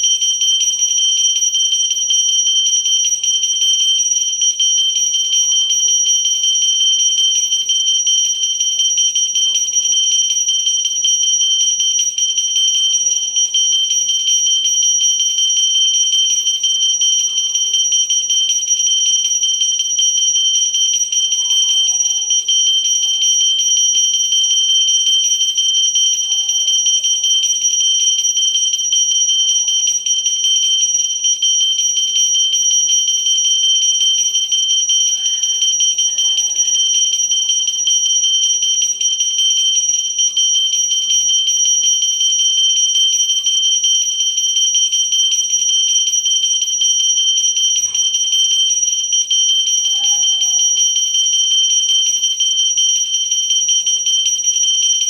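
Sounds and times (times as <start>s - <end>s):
hand bell ringing: 34.2s - 38.4s, 47.6s - 48.7s, 49.3s - 51.2s.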